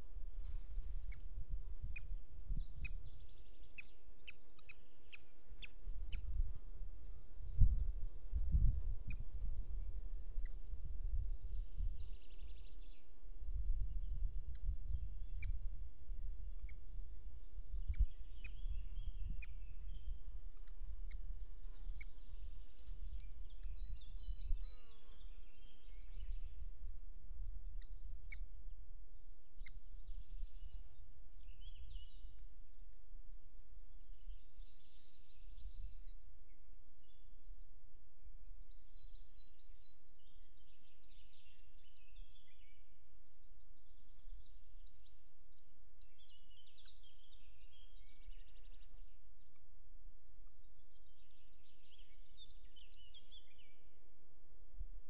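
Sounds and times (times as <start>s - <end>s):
wind on microphone: 0.0s - 4.4s, 5.3s - 28.3s
birds singing: 1.0s - 13.2s, 13.8s - 37.8s, 38.4s - 54.8s.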